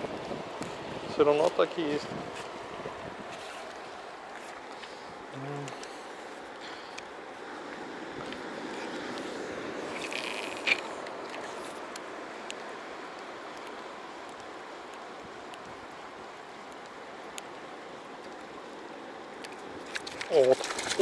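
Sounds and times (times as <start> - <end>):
river current flowing: 0.0 - 21.0
faint ticks: 10.1 - 17.6.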